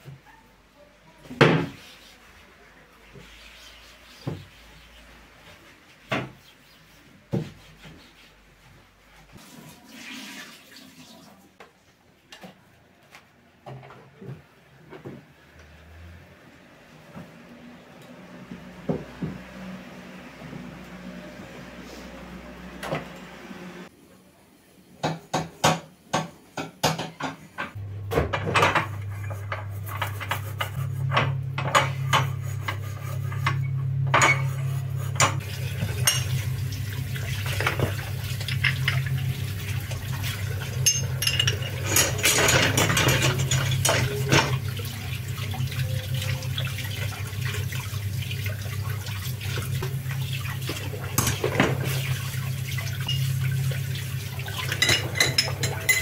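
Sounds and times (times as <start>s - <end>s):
tap running: 27.8s - 56.0s
metal grates clattering in sink: 28.3s - 47.2s, 54.5s - 56.0s
metal clinking against sink: 35.2s - 44.9s, 52.9s - 53.3s, 54.5s - 56.0s.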